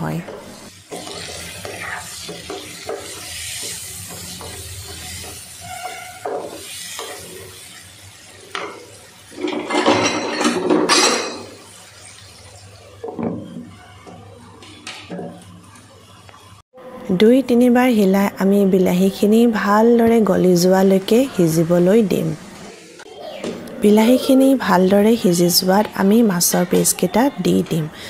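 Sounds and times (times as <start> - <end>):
vegetables sizzling: 0.0 - 16.6, 17.6 - 28.0
spatula scraping a wok: 0.4 - 8.2.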